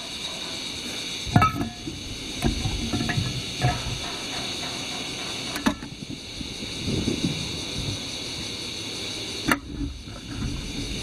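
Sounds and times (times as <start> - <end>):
high insect drone: 0.0 - 11.0
metal pots and cups clinking: 1.3 - 4.8.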